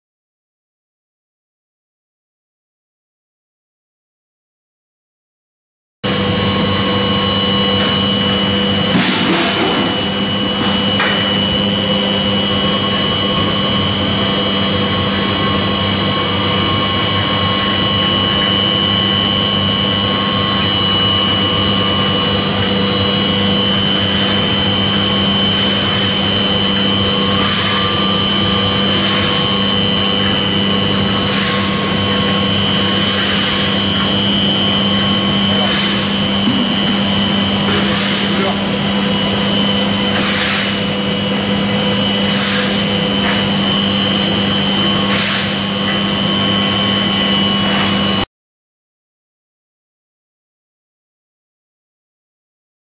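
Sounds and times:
pellet mill motor humming: 6.0s - 48.3s.

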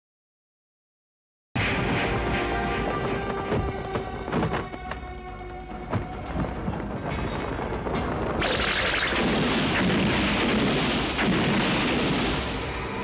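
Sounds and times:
dramatic orchestral score: 1.6s - 13.0s
explosion blast and rumble: 6.3s - 13.0s.

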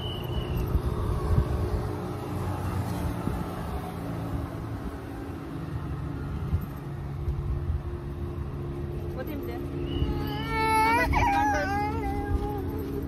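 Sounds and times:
wind on microphone: 0.0s - 5.2s.

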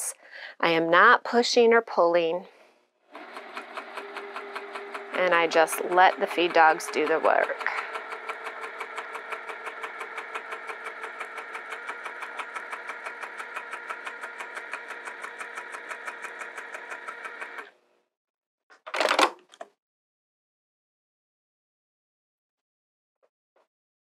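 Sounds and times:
sewing machine stitching: 3.1s - 17.8s.

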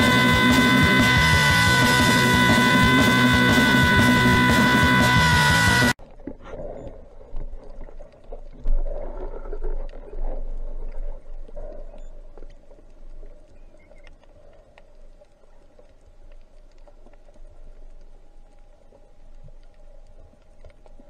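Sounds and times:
muffled underwater rumbling: 0.0s - 21.0s
faint clicks: 6.0s - 21.0s.

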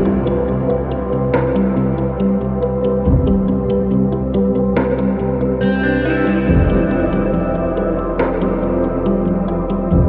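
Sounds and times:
ambient droning chords: 0.0s - 10.0s
light ticking beat: 3.0s - 5.3s, 6.5s - 10.0s.

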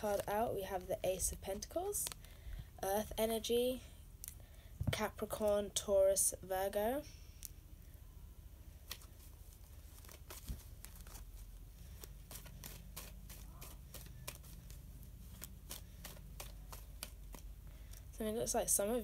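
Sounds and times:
low steady hum: 0.0s - 19.0s
cards shuffling: 8.8s - 18.1s.

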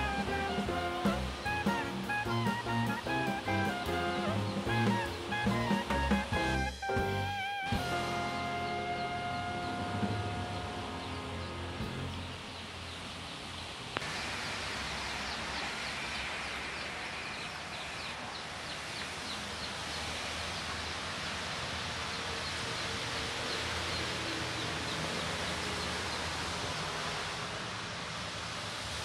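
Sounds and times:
water running and splashing: 10.8s - 29.0s.

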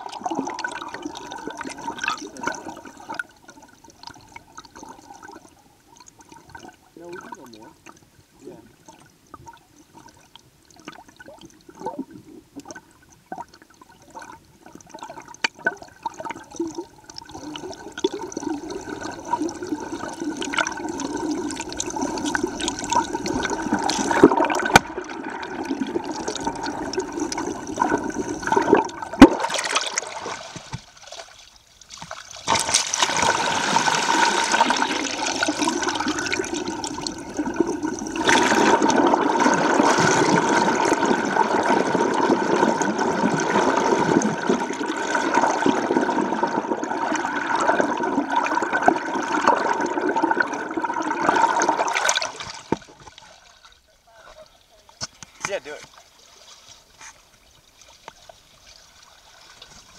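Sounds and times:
underwater water rushing and gurgling: 0.0s - 54.2s.

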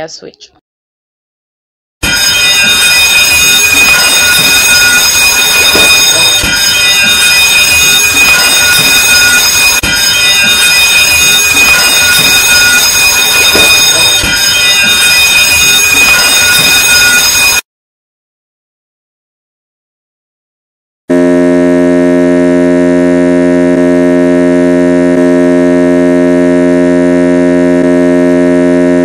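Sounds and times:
electric alarm bell ringing: 2.0s - 17.6s.

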